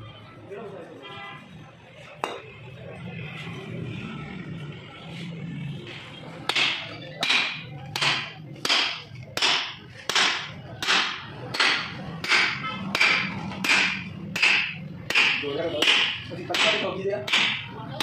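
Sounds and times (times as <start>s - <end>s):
sharp strikes: 6.5s - 17.7s.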